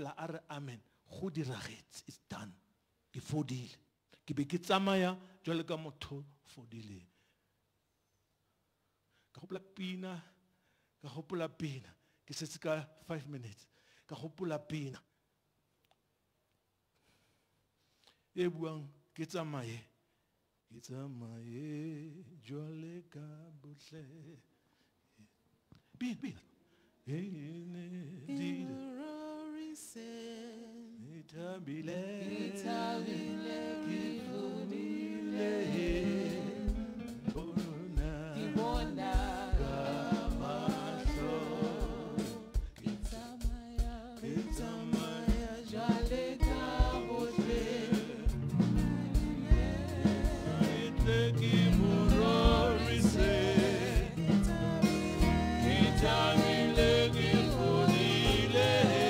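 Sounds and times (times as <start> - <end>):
gospel voices singing: 27.1 - 59.0
drum beat: 35.8 - 59.0.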